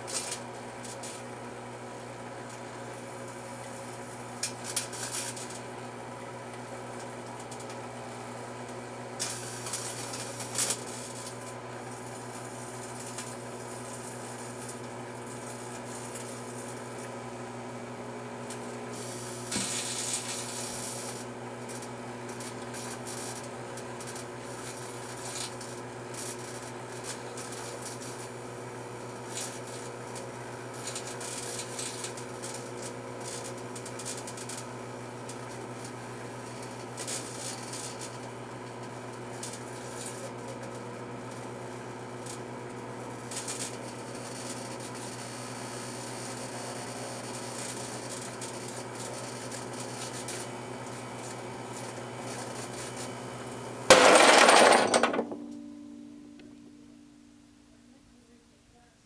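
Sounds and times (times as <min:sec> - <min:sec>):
microwave oven humming: 0:00.0 - 0:59.0
electrical arcing crackles: 0:03.2 - 0:05.7, 0:09.2 - 0:17.1, 0:18.3 - 0:28.4, 0:29.2 - 0:34.6, 0:36.5 - 0:38.2, 0:43.1 - 0:45.2, 0:47.2 - 0:53.1.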